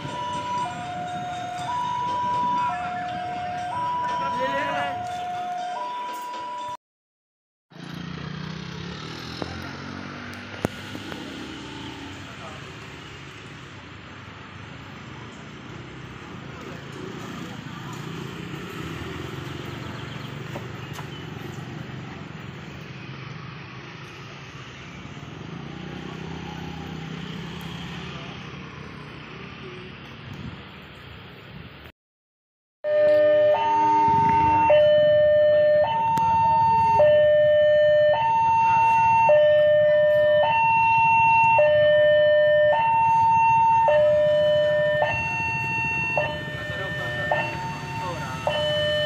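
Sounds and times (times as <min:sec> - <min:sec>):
traffic engine hum: 0:00.0 - 0:05.8, 0:07.7 - 0:31.9, 0:32.9 - 0:49.0
two-tone electronic warning alarm: 0:00.0 - 0:06.8, 0:32.8 - 0:49.0
motor scooter passing: 0:07.8 - 0:13.9, 0:14.7 - 0:30.8.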